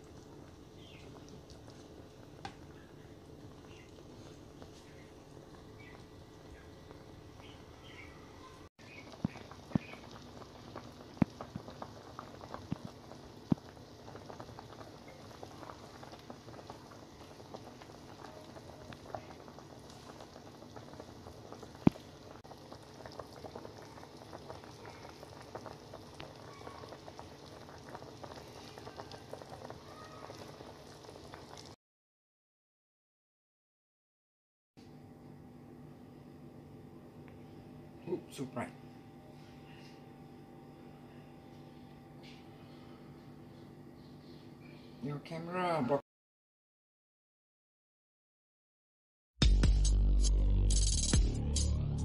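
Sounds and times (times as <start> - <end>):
sauce bubbling in a pot: 0.0 - 31.8.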